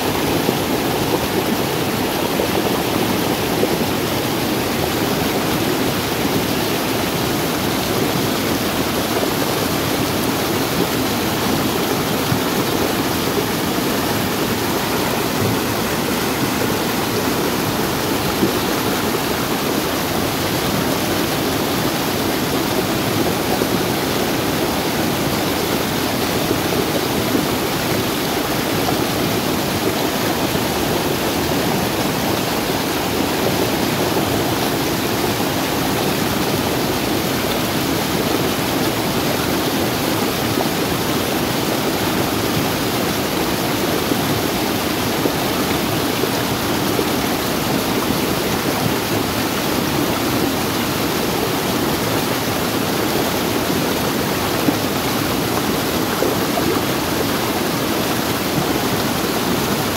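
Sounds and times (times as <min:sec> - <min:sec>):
water rushing down rocky gully: 0:00.0 - 0:59.9.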